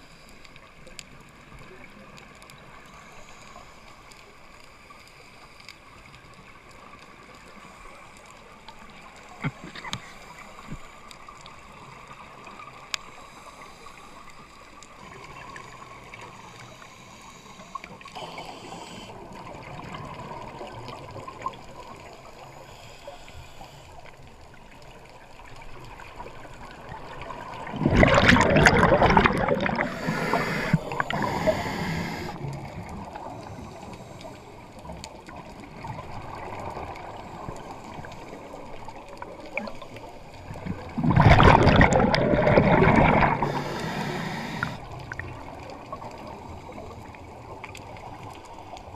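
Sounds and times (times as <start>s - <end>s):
water hiss: 13.0s - 24.2s, 26.7s - 35.0s, 35.8s - 48.9s
diver's exhaled bubbles: 27.4s - 33.0s, 40.5s - 45.3s.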